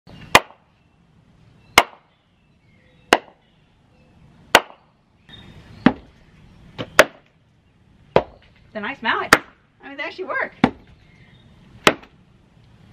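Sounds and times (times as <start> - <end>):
wooden mallet knocking on log: 10.6 - 10.8.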